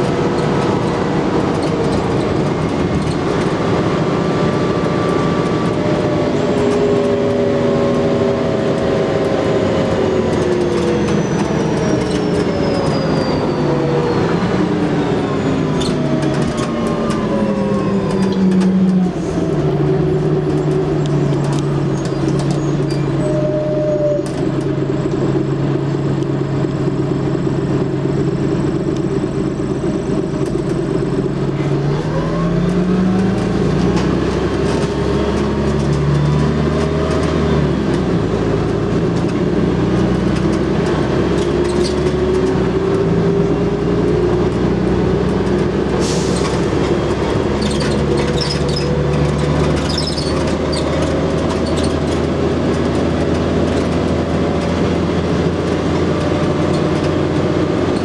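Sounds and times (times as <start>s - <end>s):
bus diesel engine: 0.0s - 58.0s
road and body noise: 0.0s - 58.0s.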